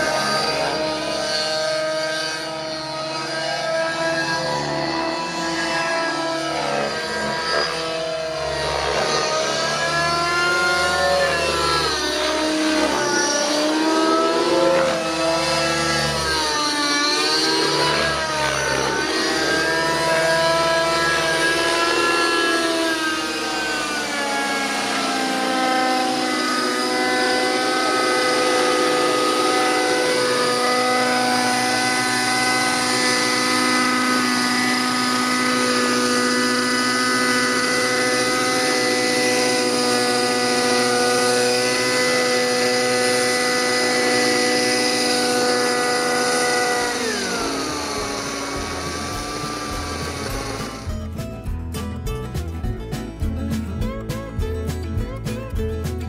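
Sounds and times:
model helicopter engine and rotor: 0:00.0 - 0:51.2.

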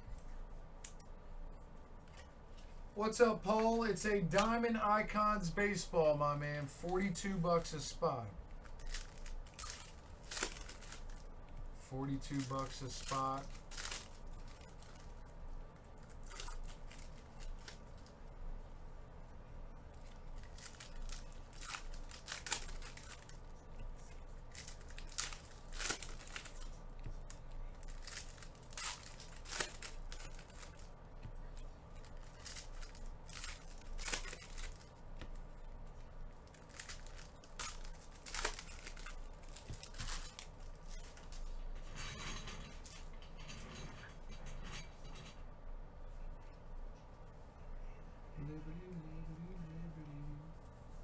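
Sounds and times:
foil wrappers tearing and crinkling: 0:08.6 - 0:11.3, 0:12.0 - 0:15.3, 0:16.0 - 0:18.1, 0:20.0 - 0:31.0, 0:31.9 - 0:35.3, 0:36.4 - 0:41.5.

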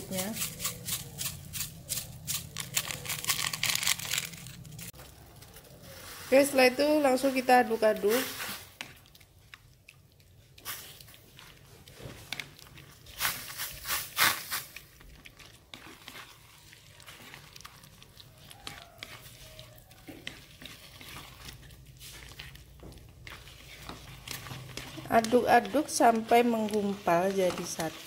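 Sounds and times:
rice paddle stirring wet rice: 0:05.6 - 0:09.2, 0:10.5 - 0:28.0.

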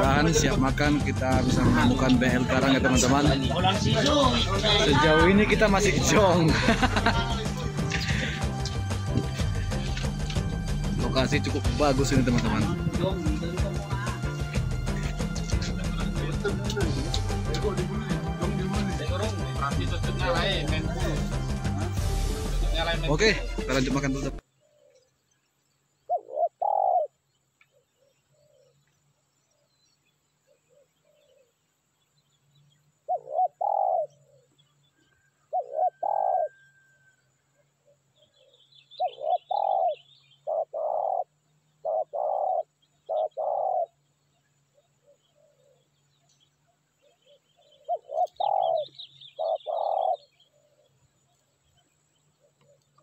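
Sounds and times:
small birds chirping: 0:00.0 - 0:53.0
dove cooing: 0:26.1 - 0:27.2, 0:33.0 - 0:34.6, 0:35.2 - 0:37.1, 0:37.8 - 0:44.0, 0:44.7 - 0:45.9, 0:47.0 - 0:51.0.

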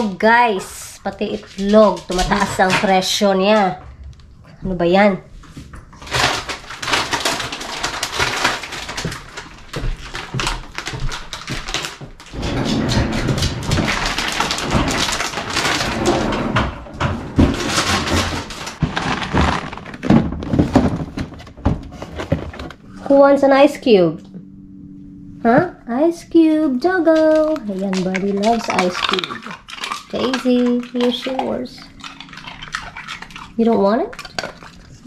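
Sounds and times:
plastic bags rustling: 0:06.0 - 0:12.4, 0:13.2 - 0:16.4, 0:17.0 - 0:23.1
boxes thunking into freezer drawer: 0:06.0 - 0:22.8.

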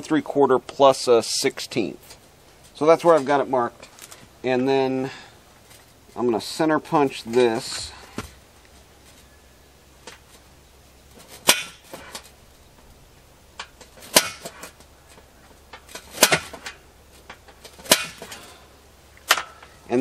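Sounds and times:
center punch striking metal: 0:11.4 - 0:12.0, 0:14.0 - 0:14.7, 0:16.0 - 0:16.8, 0:17.8 - 0:18.4.

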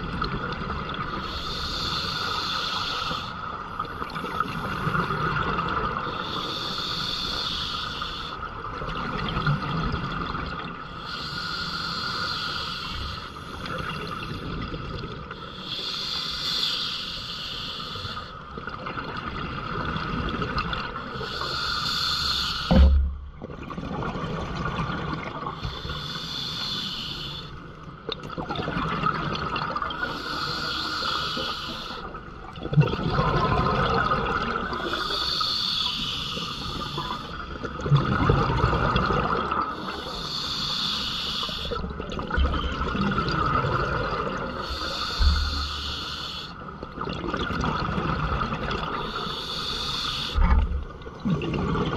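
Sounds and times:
diver breathing through regulator: 0:01.2 - 0:03.4, 0:06.2 - 0:08.4, 0:10.9 - 0:14.4, 0:15.4 - 0:18.4, 0:21.2 - 0:23.0, 0:25.6 - 0:27.6, 0:30.0 - 0:32.1, 0:34.8 - 0:37.3, 0:39.7 - 0:41.9, 0:44.4 - 0:46.7, 0:49.0 - 0:50.8.

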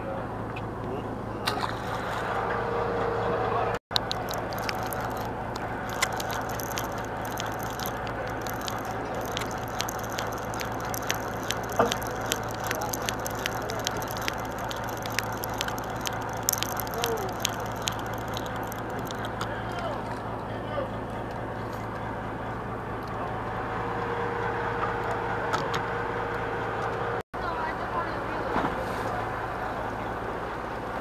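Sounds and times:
boat engine hum: 0:00.0 - 0:31.0
wind: 0:00.0 - 0:31.0
fishing reel ticking: 0:03.9 - 0:19.4.

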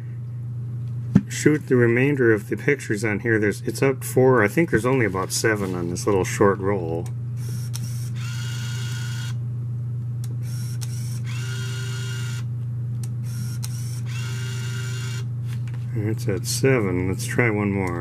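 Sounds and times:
steady low hum: 0:00.0 - 0:18.0
camera motor whirring: 0:07.4 - 0:09.4, 0:10.4 - 0:12.5, 0:13.2 - 0:15.7.

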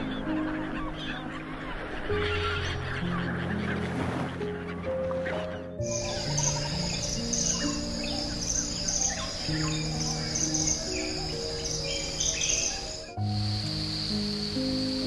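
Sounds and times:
calm background music: 0:00.0 - 0:15.0
crickets trilling: 0:05.8 - 0:15.0.

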